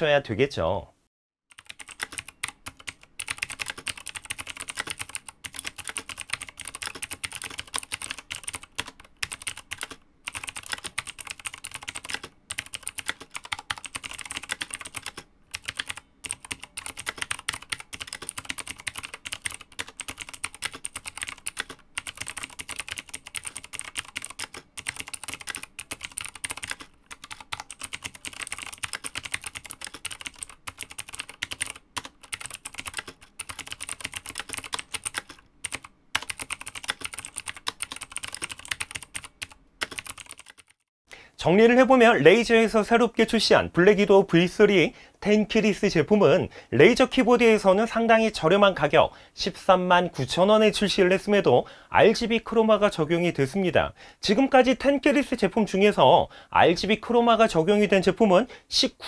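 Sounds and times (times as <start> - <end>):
mechanical keyboard typing clicks: 1.5 - 40.8.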